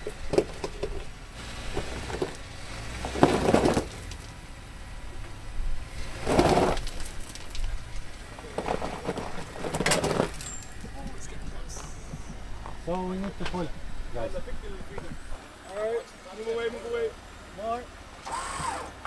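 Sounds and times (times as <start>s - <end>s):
engine running low and surging: 0.0s - 19.0s
tyres scrubbing on rock: 6.0s - 12.0s.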